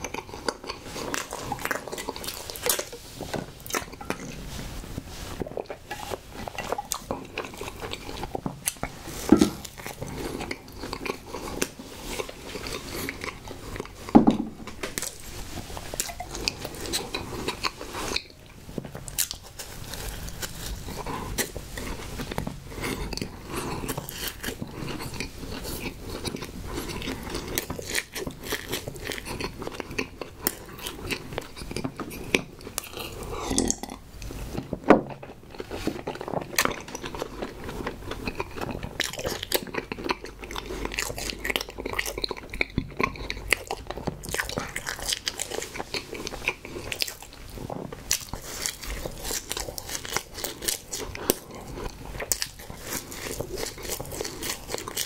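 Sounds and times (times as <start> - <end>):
sticky chewing: 0.0 - 55.0
biting snack cake: 15.9 - 55.0.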